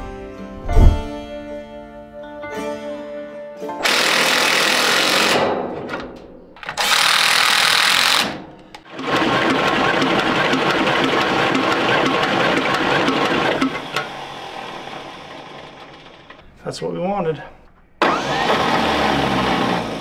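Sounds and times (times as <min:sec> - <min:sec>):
engine cranked by starter motor: 0:06.6 - 0:16.4, 0:18.0 - 0:20.0.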